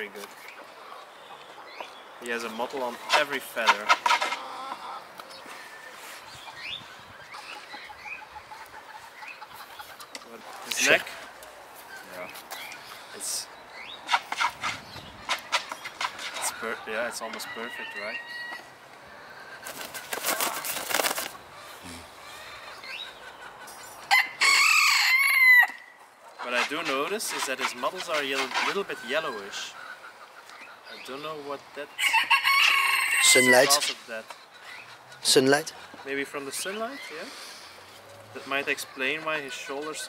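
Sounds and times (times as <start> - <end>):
chicken clucking: 2.8 - 5.4, 6.4 - 12.2, 14.0 - 24.2, 26.2 - 40.0
rooster crowing: 17.4 - 18.7, 24.1 - 26.0, 32.0 - 33.8.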